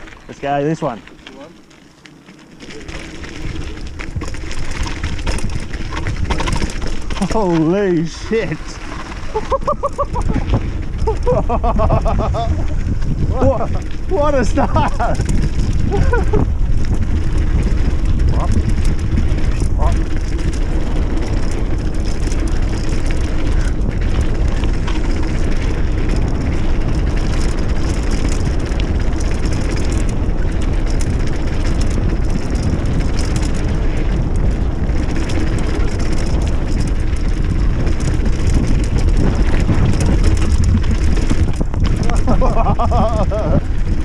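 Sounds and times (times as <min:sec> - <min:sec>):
bike rattling and clicking: 0:00.0 - 0:44.0
tyres crunching over dirt: 0:00.0 - 0:44.0
wind buffeting microphone: 0:02.1 - 0:44.0.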